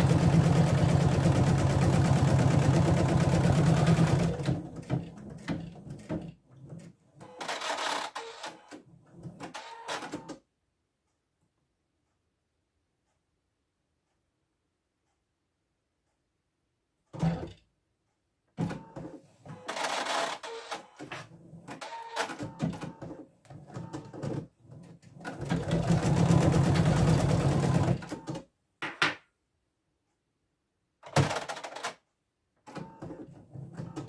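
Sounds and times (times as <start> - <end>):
embroidery machine stitching: 0.0 - 10.2, 18.8 - 28.4.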